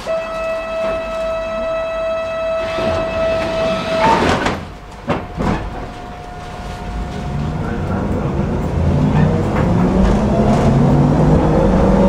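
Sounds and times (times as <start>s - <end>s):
door closing warning tone: 0.0s - 8.4s
doors shutting with rush: 0.0s - 12.0s.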